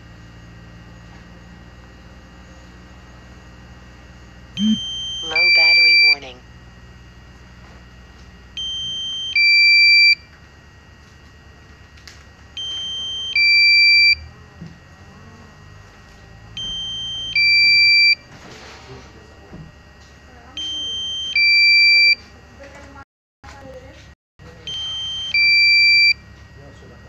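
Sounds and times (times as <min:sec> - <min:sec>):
two-tone electronic alarm beeps: 0:04.6 - 0:06.4, 0:08.5 - 0:10.4, 0:12.5 - 0:14.4, 0:16.5 - 0:18.3, 0:20.5 - 0:22.3, 0:24.4 - 0:26.3.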